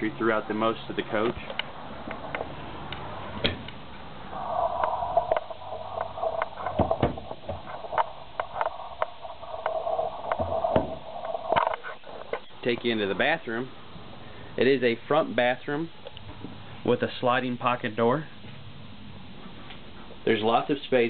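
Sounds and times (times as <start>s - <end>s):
steady whine: 0.0s - 18.0s
cabinet doors opening and closing: 6.7s - 7.7s.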